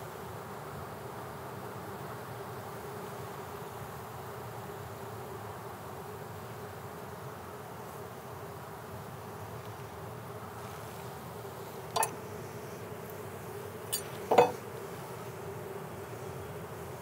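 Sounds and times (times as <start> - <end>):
honeybees buzzing: 6.0 - 17.0
frames knocking in wooden box: 14.2 - 14.6.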